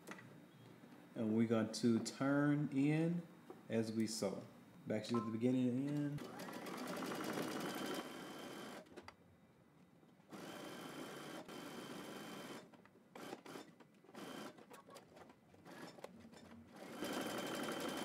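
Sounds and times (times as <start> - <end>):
electric sewing machine sewing: 6.2 - 8.9, 10.3 - 14.9, 15.6 - 18.0.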